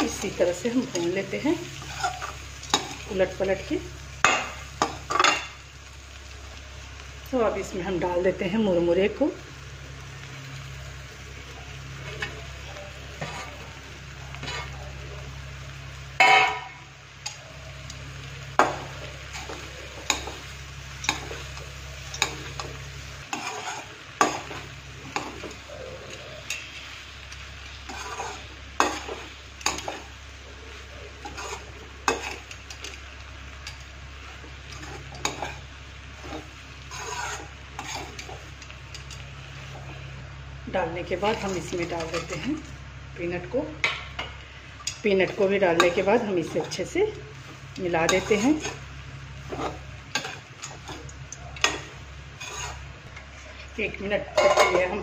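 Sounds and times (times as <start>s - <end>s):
metal spatula scraping a pan: 0.0s - 3.0s, 13.2s - 13.7s, 14.4s - 14.8s, 21.0s - 27.0s, 27.8s - 30.1s, 31.1s - 33.0s, 34.7s - 39.9s, 49.4s - 53.6s
light sizzling: 0.0s - 55.0s
steady low hum: 0.0s - 55.0s.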